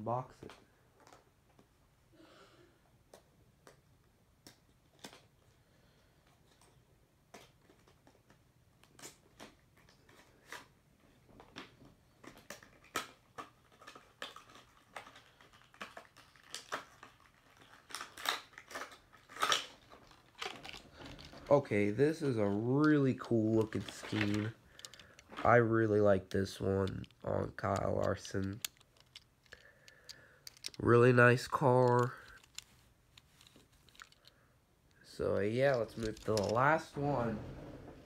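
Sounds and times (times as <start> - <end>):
cardboard packaging tearing: 15.6 - 21.2.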